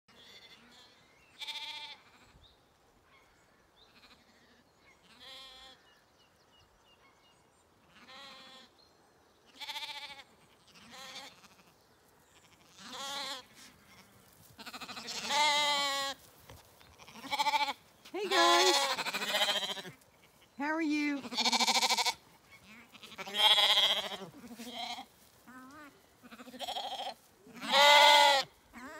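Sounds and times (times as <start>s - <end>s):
lambs bleating: 0.2s - 2.2s, 4.0s - 5.8s, 7.9s - 8.7s, 9.5s - 11.7s, 12.3s - 16.2s, 16.9s - 20.4s, 21.0s - 28.9s.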